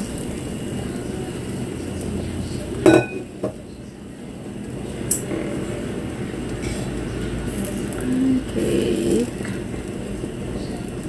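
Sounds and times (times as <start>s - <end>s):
kitchenware clinking: 2.8s - 3.6s.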